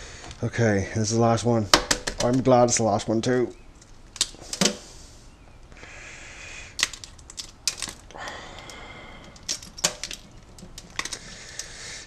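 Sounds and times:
eggshell cracking and crunching: 0:04.1 - 0:04.8, 0:06.7 - 0:11.8.

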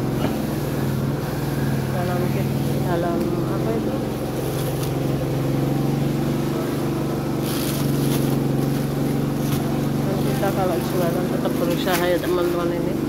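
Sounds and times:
machine motor droning: 0:00.0 - 0:13.0
rasping bursts: 0:03.9 - 0:11.8.

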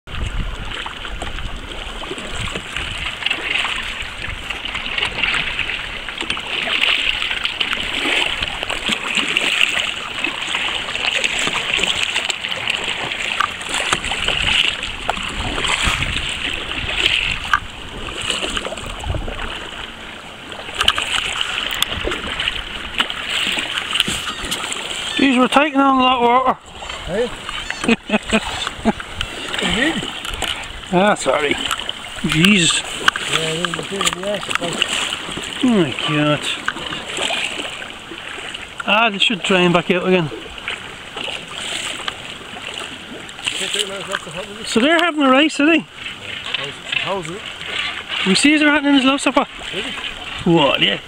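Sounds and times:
wind rumble on microphone: 0:00.1 - 0:06.2, 0:13.8 - 0:20.1
sea water splashing: 0:00.1 - 0:51.0.

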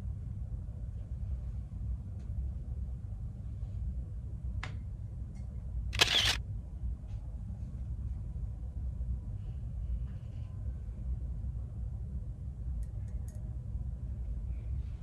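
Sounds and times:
steady low hum: 0:00.0 - 0:15.0
camera shutter click: 0:06.0 - 0:06.4.

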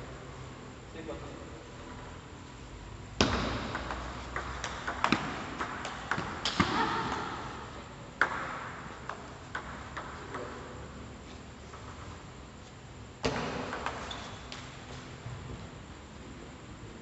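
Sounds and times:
table tennis ball hits: 0:03.2 - 0:07.4, 0:08.2 - 0:10.7, 0:13.2 - 0:14.7.

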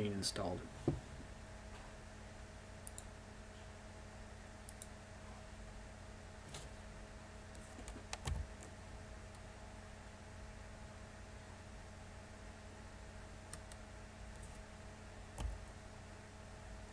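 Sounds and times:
low steady hum: 0:00.0 - 0:16.9
soft bump: 0:00.8 - 0:01.1
keyboard and mouse clicks: 0:02.8 - 0:03.1, 0:07.5 - 0:08.7, 0:13.5 - 0:14.6.

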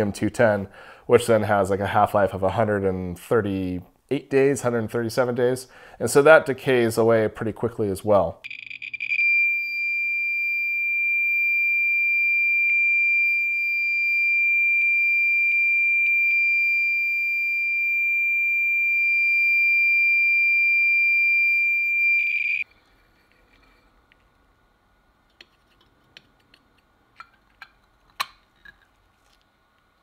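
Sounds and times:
high-pitched alarm tone: 0:08.5 - 0:22.6.

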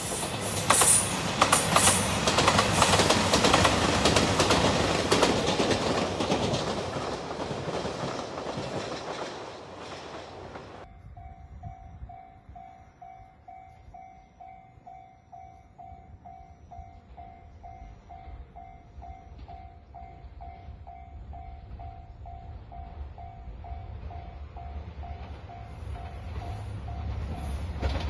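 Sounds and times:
passing train: 0:00.0 - 0:28.0
low wind rumble: 0:01.1 - 0:14.1.

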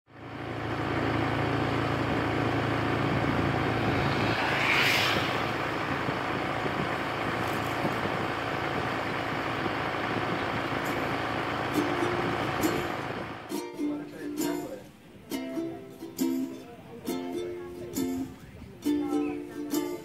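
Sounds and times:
road and wind noise: 0:00.1 - 0:13.6, 0:17.5 - 0:19.9
vehicle engine running: 0:00.1 - 0:14.0
rough rumble: 0:01.4 - 0:10.7
rushing swell: 0:02.3 - 0:07.8.

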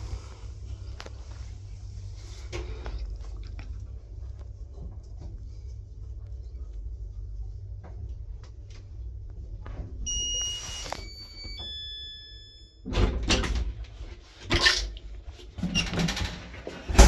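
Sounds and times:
elevator humming: 0:03.8 - 0:13.1
three-note electronic chime: 0:10.1 - 0:12.9.

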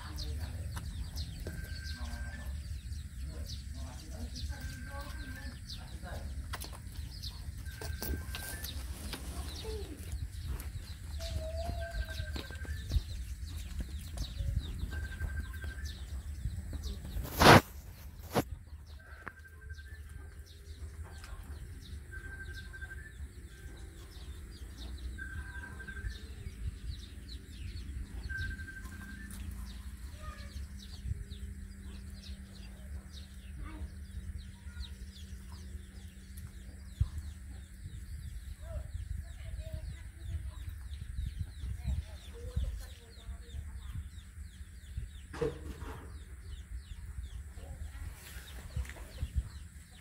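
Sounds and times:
faint chirps: 0:00.0 - 0:50.0
steady low rumble: 0:23.1 - 0:45.4.

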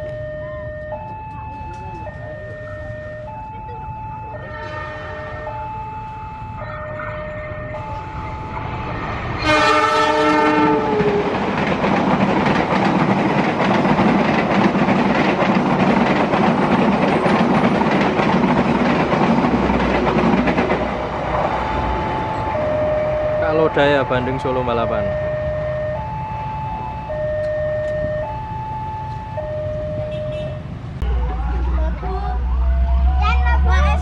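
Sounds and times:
two-tone crossing alarm chimes: 0:00.0 - 0:09.4, 0:21.0 - 0:31.2
passenger train passing: 0:00.0 - 0:34.0
locomotive horn: 0:04.4 - 0:06.0, 0:09.4 - 0:11.3, 0:29.9 - 0:31.7.

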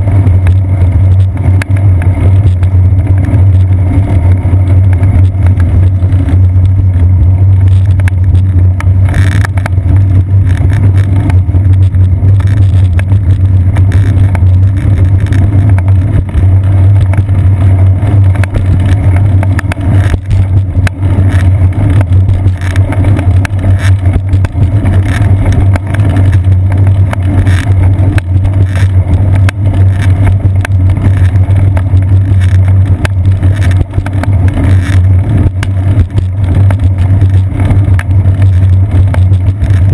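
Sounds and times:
road vibration rumble: 0:00.0 - 0:39.9
wind: 0:00.0 - 0:39.9.

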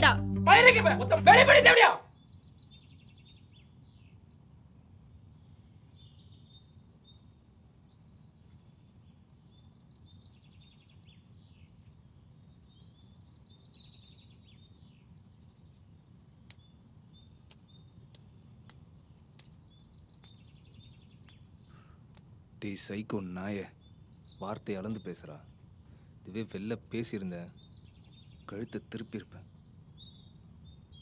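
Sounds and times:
birds chirping and trilling: 0:05.0 - 0:31.0
soft ticks: 0:17.5 - 0:19.6.

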